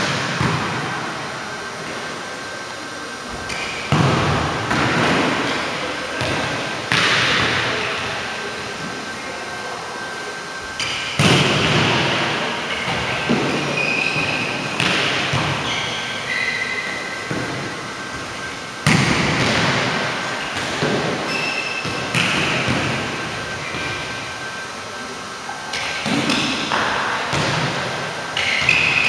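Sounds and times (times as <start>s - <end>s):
sneaker squeaks: 3.3s - 4.0s, 10.6s - 11.8s, 12.6s - 24.7s, 25.4s - 29.0s.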